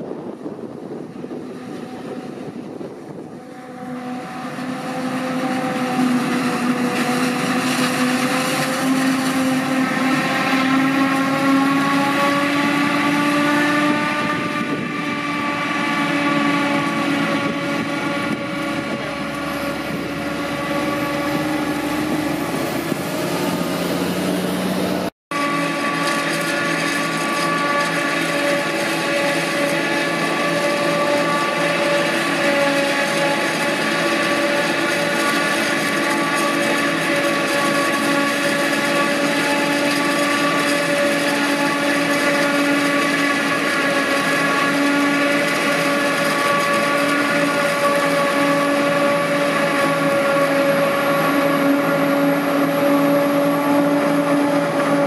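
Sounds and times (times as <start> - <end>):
harvester whining hum: 0.0 - 55.0.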